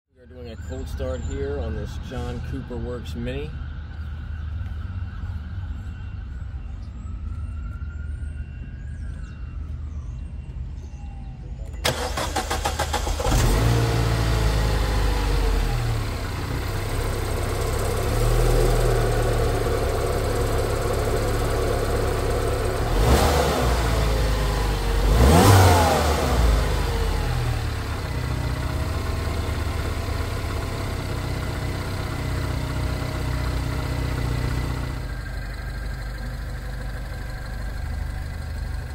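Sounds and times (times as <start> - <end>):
car starter cranking: 11.8 - 14.1
car engine revving and idling: 11.9 - 38.9.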